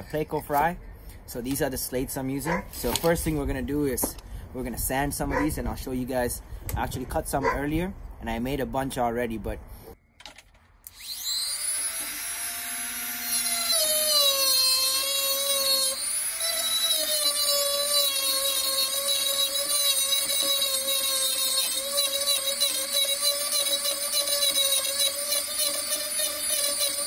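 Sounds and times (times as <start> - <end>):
rotary tool sanding stone: 10.9 - 27.0.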